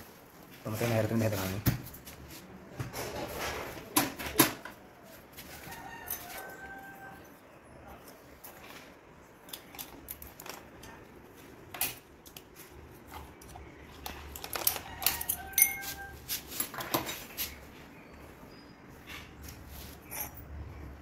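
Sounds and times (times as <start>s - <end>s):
metal lock parts clinking: 8.1s - 17.3s, 20.0s - 20.6s
short metallic rings: 15.2s - 16.2s, 20.0s - 20.6s.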